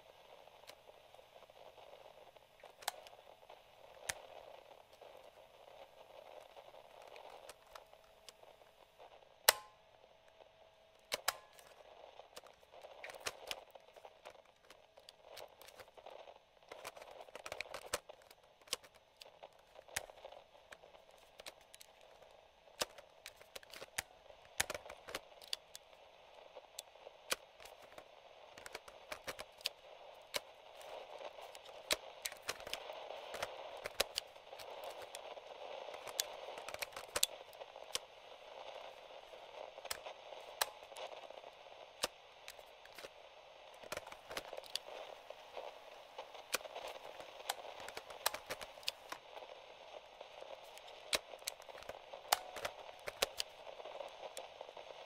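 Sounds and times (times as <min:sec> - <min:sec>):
radio static hiss: 0:00.0 - 0:55.0
button and switch clicks: 0:09.5 - 0:09.8, 0:11.1 - 0:11.7.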